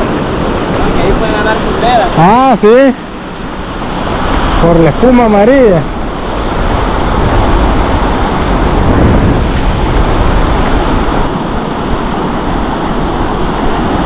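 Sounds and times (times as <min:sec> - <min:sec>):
ocean surf breaking on beach: 0:00.0 - 0:14.0
wind buffeting microphone: 0:00.0 - 0:14.0.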